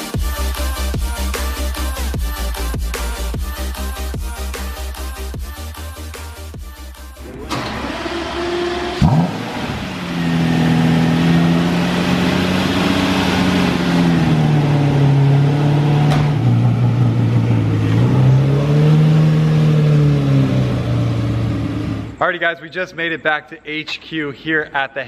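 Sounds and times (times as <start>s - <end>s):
car engine running at low revs: 6.7s - 22.2s.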